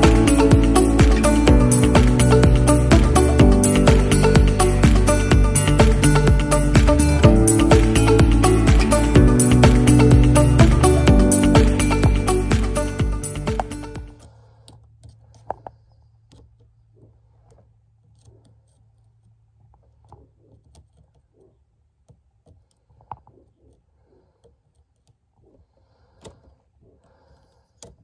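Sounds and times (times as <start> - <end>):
background music: 0.0 - 14.2
low steady hum: 0.0 - 15.3.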